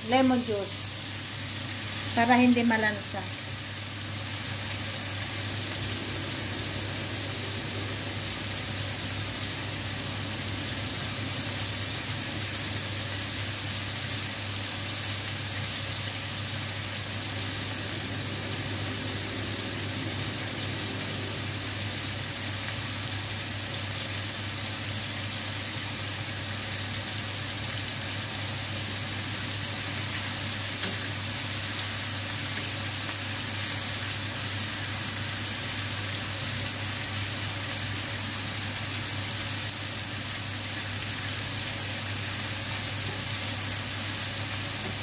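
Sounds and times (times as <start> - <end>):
chicken sizzling in oil: 0.0 - 45.0
low hum: 4.5 - 12.9, 16.9 - 22.6.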